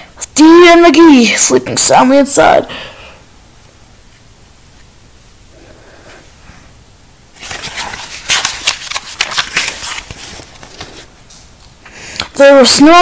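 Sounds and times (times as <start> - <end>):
paper pages rustling: 7.4 - 11.7.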